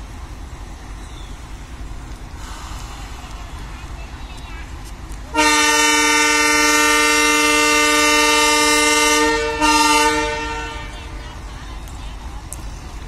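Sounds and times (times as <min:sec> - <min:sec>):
locomotive air horn blasts: 0:05.3 - 0:11.2.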